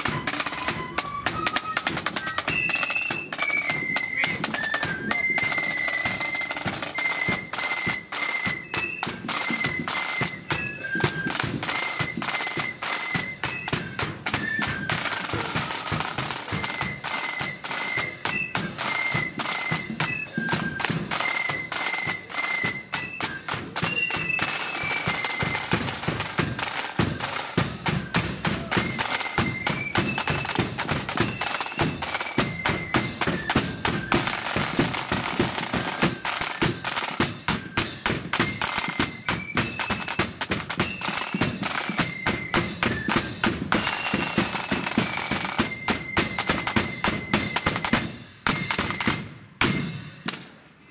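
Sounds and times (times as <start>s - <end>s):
shrill flutes melody: 0.0s - 50.2s
side drum rolls: 0.0s - 50.6s.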